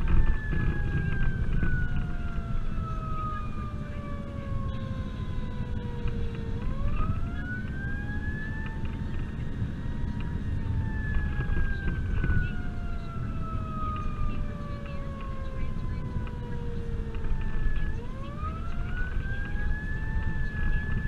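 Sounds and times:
emergency siren wailing: 0:00.0 - 0:21.0
vehicle engine and road rumble: 0:00.0 - 0:21.0.

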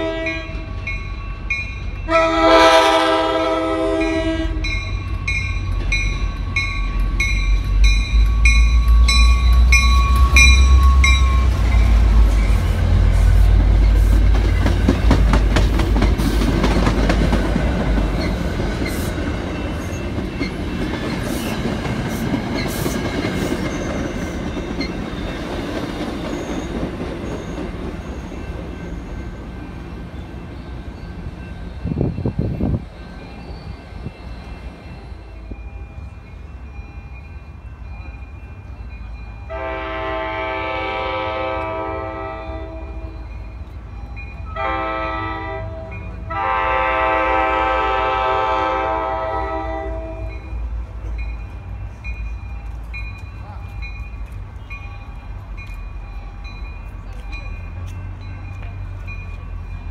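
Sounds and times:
train horn blast: 0:00.0 - 0:00.8, 0:02.1 - 0:04.7, 0:39.5 - 0:43.3, 0:44.5 - 0:50.6
locomotive engine rumbling: 0:00.0 - 0:59.9
train wheels clicking on rails: 0:04.5 - 0:39.2, 0:50.3 - 0:59.9.

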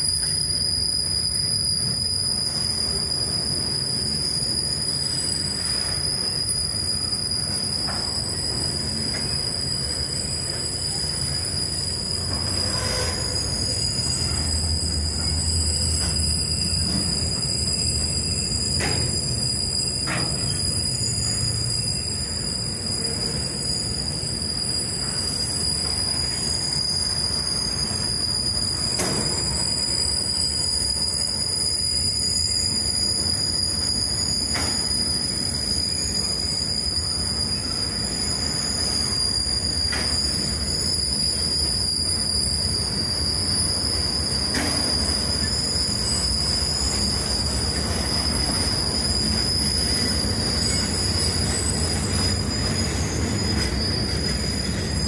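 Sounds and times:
train rumble: 0:00.0 - 0:55.0
train wheels squealing: 0:00.0 - 0:55.0.

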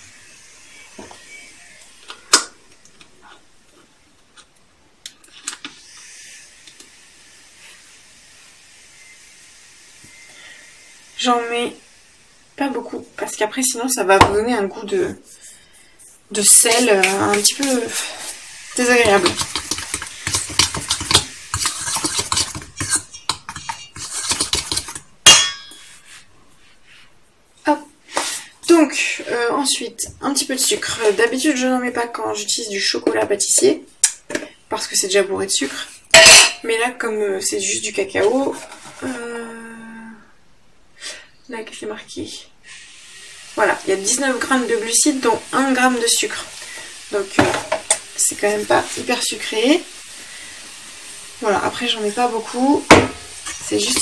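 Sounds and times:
utensil scraping metal bowl: 0:16.3 - 0:26.2, 0:35.7 - 0:36.6
ringing metal clang: 0:25.3 - 0:25.9, 0:36.2 - 0:36.6.

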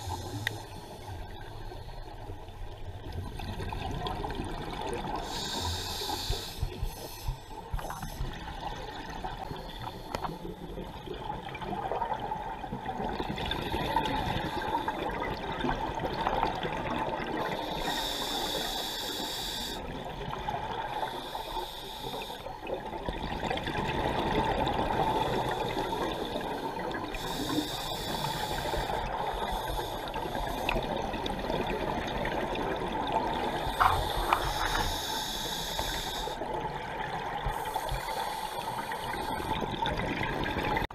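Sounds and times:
regulator inhale hiss: 0:00.0 - 0:02.3, 0:05.2 - 0:08.4, 0:17.5 - 0:19.9, 0:21.0 - 0:22.6, 0:25.1 - 0:31.1, 0:33.5 - 0:36.6, 0:37.5 - 0:39.6
underwater bubbles gurgling: 0:00.0 - 0:40.9.

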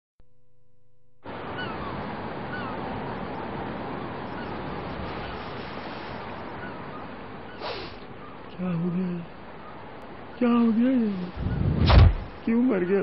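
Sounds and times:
sea surf: 0:01.2 - 0:13.0
short bird calls: 0:01.4 - 0:02.8, 0:05.2 - 0:08.6.

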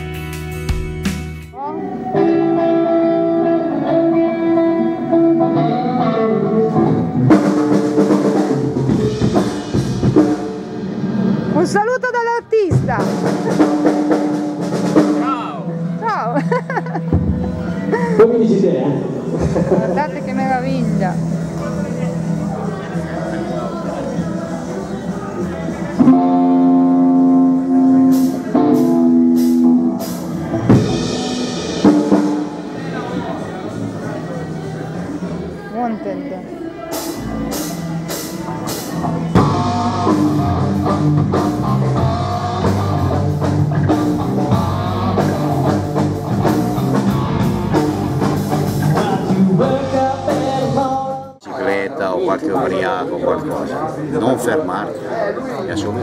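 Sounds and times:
drum kit: 0:00.0 - 0:01.6, 0:02.2 - 0:17.8, 0:25.9 - 0:33.5, 0:36.9 - 0:51.4
long held music chords: 0:00.0 - 0:11.6, 0:13.1 - 0:35.7, 0:36.5 - 0:51.4
guitar melody: 0:00.0 - 0:51.8.

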